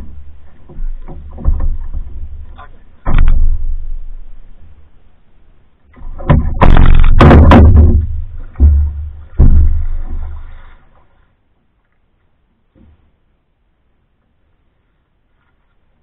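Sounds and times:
hollow knocks on canoe hull: 0.0 - 4.1, 6.0 - 10.6.

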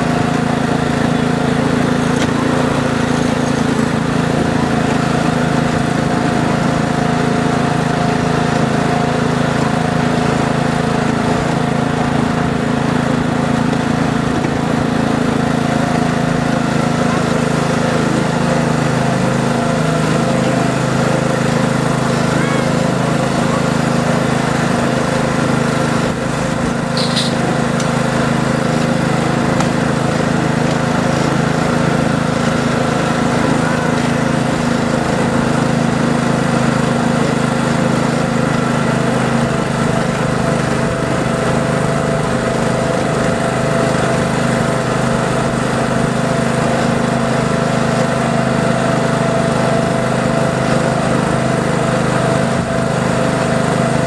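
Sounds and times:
miniature train running on track: 0.0 - 54.0
high squeak: 27.0 - 27.4.

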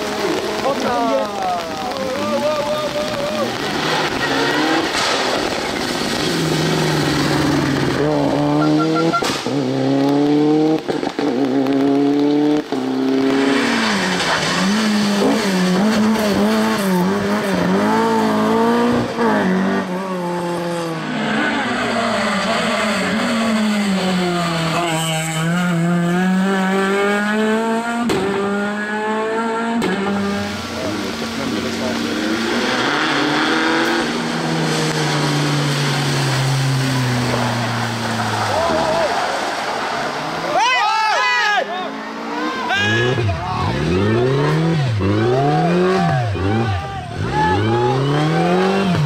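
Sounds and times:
rally car engines revving: 0.0 - 49.0.

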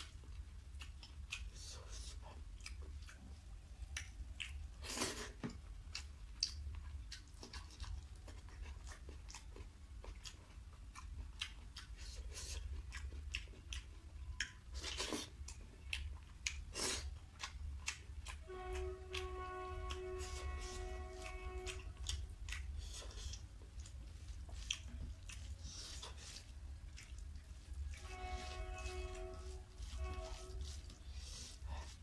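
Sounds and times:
person chewing: 0.0 - 32.0
low hum: 17.6 - 32.0.

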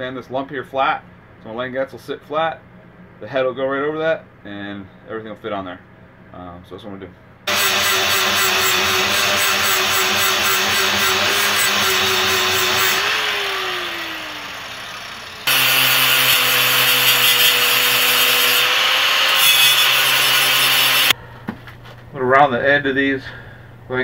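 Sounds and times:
angle grinder grinding steel: 7.5 - 21.2
angle grinder sanding wood: 7.5 - 21.2
angle grinder winding down: 7.5 - 21.2.

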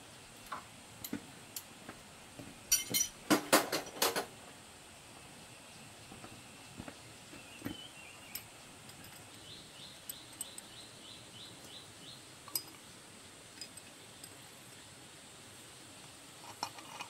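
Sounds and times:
small metal tool clinks: 2.7 - 3.2, 12.5 - 12.8
bird chirping: 5.6 - 12.6.

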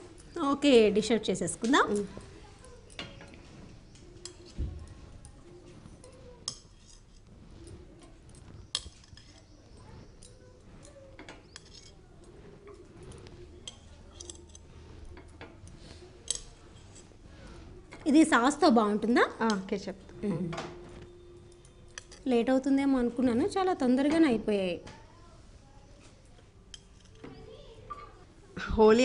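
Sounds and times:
metal skewer clinking on a pan: 7.8 - 17.1.

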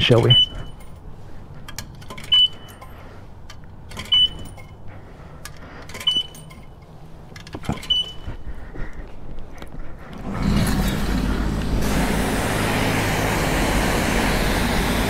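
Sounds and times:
short high beep: 0.3 - 0.8
coins clicking into slot: 1.7 - 4.8, 5.9 - 6.8.

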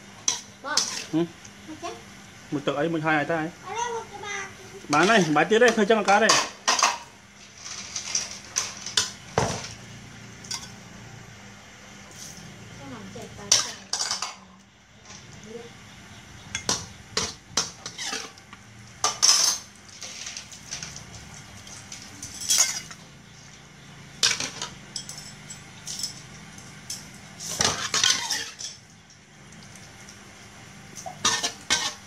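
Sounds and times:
metal spatula scraping a wok: 0.3 - 1.2, 17.6 - 18.4, 21.9 - 23.0, 27.4 - 28.8, 31.0 - 32.0.

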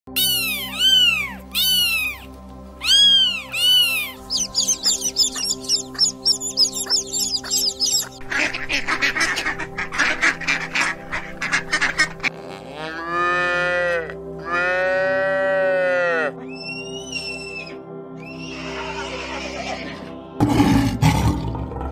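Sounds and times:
kittens mewing: 0.1 - 7.0
faint background music: 0.1 - 21.9
chicks peeping: 0.2 - 11.2
cow mooing: 12.4 - 16.4.

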